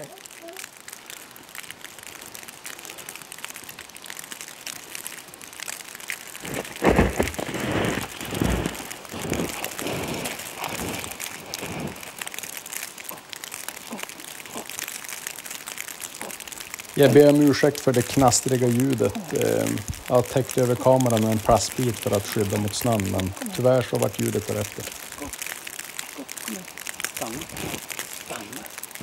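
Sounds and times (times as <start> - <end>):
plastic sheet crackling on microphone: 0.0 - 29.0
footsteps in deep snow: 6.4 - 12.2.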